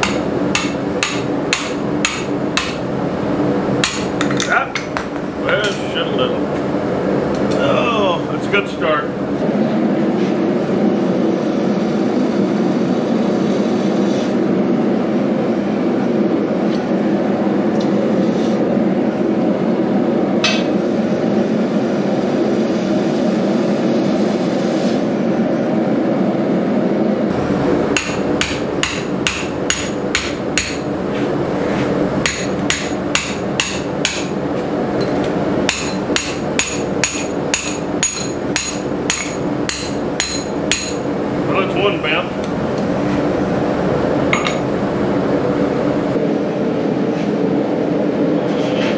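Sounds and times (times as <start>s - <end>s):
hammer striking metal on anvil: 0.0s - 2.8s, 3.8s - 4.4s, 20.4s - 20.8s, 27.9s - 30.9s, 32.2s - 34.3s, 35.0s - 41.1s.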